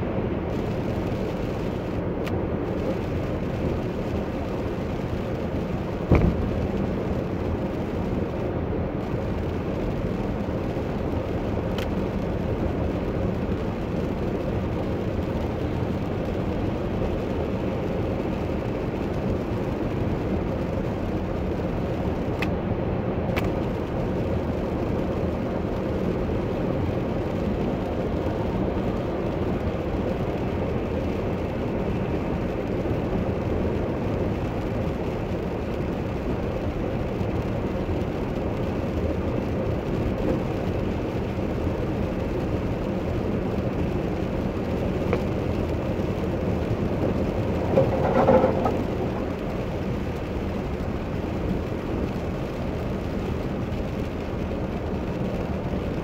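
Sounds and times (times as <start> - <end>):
tyre noise on wet road: 0.0 - 56.0
car engine running: 0.1 - 22.5, 23.5 - 56.0
sharp knock: 6.1 - 6.6
faint ticks: 47.6 - 49.2.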